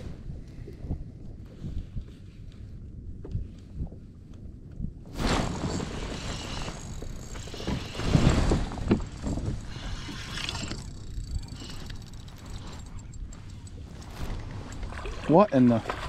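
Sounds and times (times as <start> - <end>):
wind noise: 0.0 - 16.0
water noise: 5.0 - 16.0.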